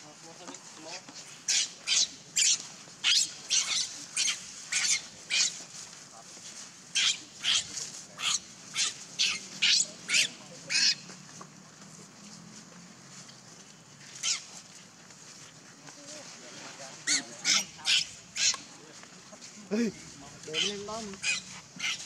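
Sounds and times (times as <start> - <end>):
baby monkey shrieking: 1.5 - 5.6, 7.0 - 11.0, 14.2 - 14.5, 17.0 - 18.6, 20.6 - 22.0.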